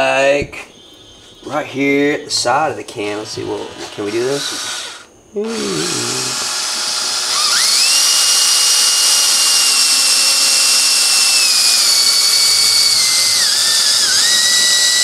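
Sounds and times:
cordless drill boring metal: 0:03.2 - 0:15.0.

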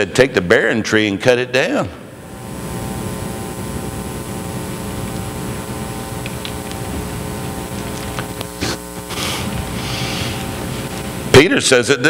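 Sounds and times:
electrical hum and hiss: 0:00.0 - 0:12.0.

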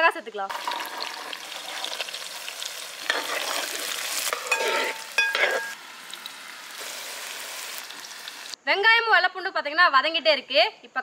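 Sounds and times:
food sizzling in hot oil: 0:00.0 - 0:08.6
steel ladle scraping a pot: 0:00.5 - 0:05.8.

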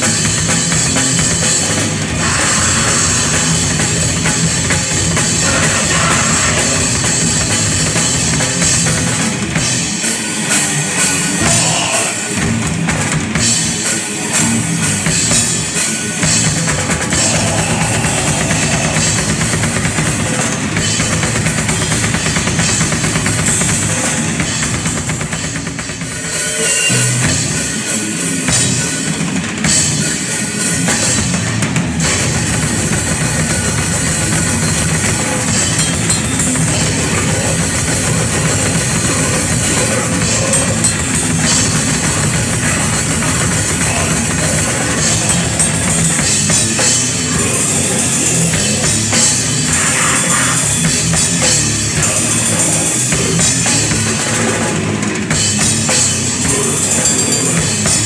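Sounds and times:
drums and cymbals: 0:00.0 - 0:58.0
rock band playing live: 0:00.0 - 0:58.0.

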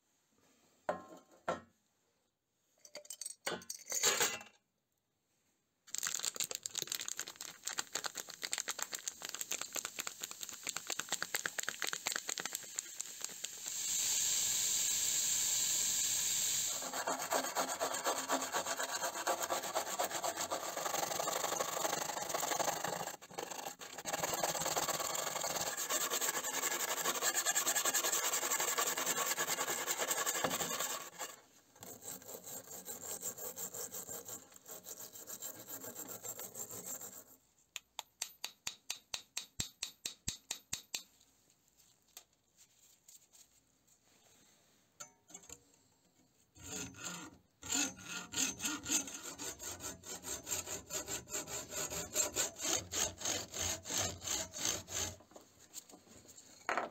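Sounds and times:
quick ticks: 0:07.1 - 0:13.7
stiff brush scrubbing metal: 0:16.7 - 0:37.2.

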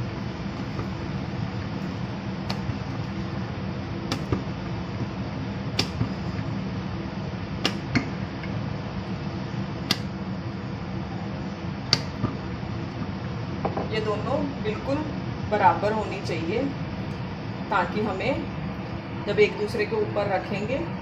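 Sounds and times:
rolling pin rolling dough: 0:00.0 - 0:06.5
steady low hum: 0:00.0 - 0:21.0.

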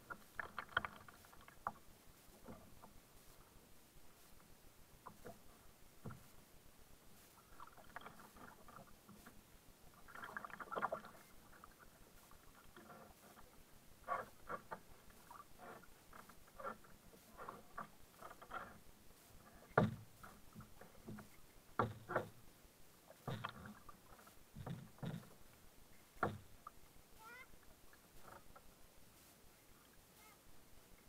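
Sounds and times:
paddle splashing in water: 0:00.0 - 0:03.5, 0:07.2 - 0:31.0
knocks on plastic hull: 0:26.2 - 0:26.4.

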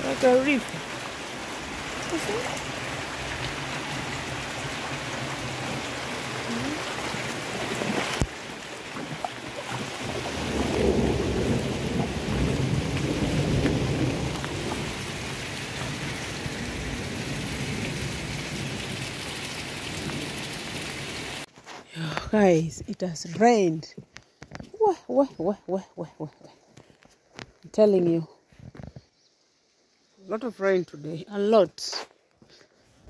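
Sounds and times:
heavy rain falling: 0:00.0 - 0:21.5.

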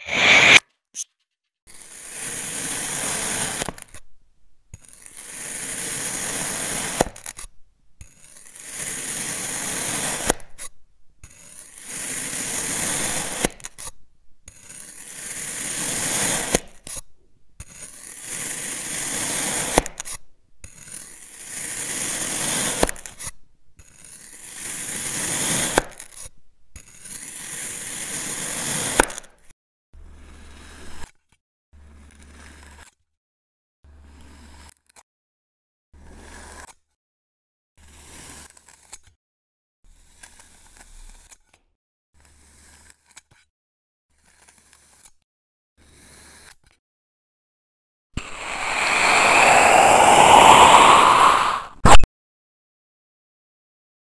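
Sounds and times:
blade slicing through sand: 0:00.0 - 0:01.1, 0:11.4 - 0:13.9, 0:14.5 - 0:17.0, 0:48.2 - 0:52.0
low hum: 0:48.2 - 0:51.8.

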